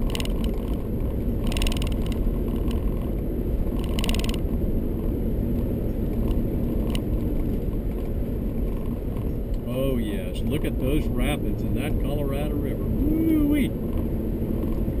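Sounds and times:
rapid rattling: 0.0s - 5.1s
car cabin road and engine rumble: 0.0s - 15.0s.

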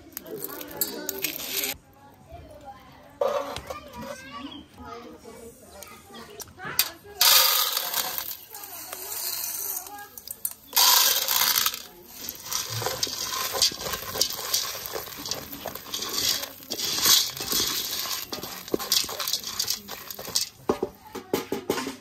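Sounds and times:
corn kernels rattling into a pot: 0.0s - 1.8s, 6.8s - 22.0s
kernels scraping against metal: 0.2s - 1.8s, 3.2s - 4.2s, 6.8s - 21.0s.

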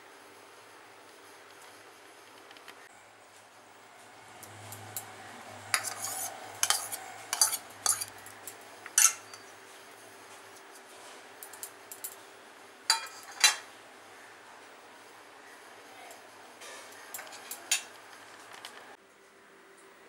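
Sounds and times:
spoon clinking against steel bowl: 5.7s - 9.5s, 12.9s - 13.6s.

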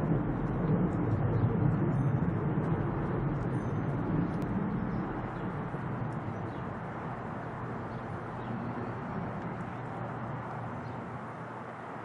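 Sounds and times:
distant engines rumbling: 0.0s - 12.0s.

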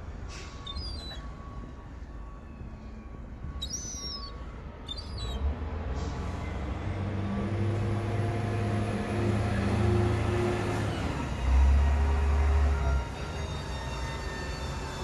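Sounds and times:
lorry engine hum: 0.0s - 15.0s
gulls calling: 0.4s - 1.6s, 3.5s - 5.5s.

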